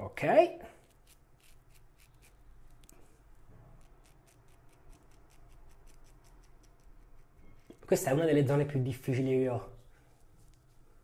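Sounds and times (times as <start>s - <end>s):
razor rasping on stubble: 0.8s - 2.5s, 3.7s - 7.9s.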